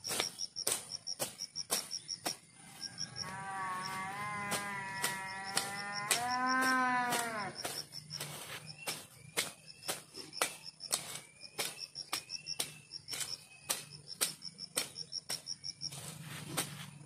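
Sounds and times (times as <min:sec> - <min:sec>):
crickets chirping: 0:00.0 - 0:17.0
plant stems snapping: 0:04.5 - 0:07.4.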